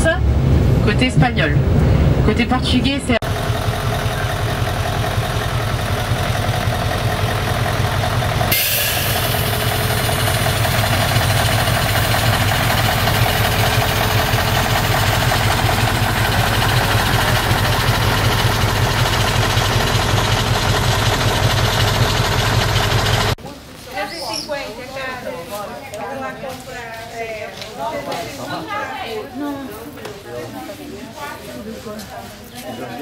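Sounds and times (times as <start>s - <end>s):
diesel engine idling: 3.2s - 23.4s.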